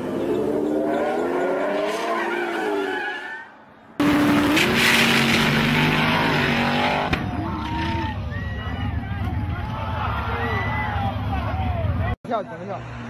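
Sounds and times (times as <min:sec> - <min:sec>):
drag car launching at full throttle: 0:04.0 - 0:07.4
car engine revving: 0:04.0 - 0:08.1.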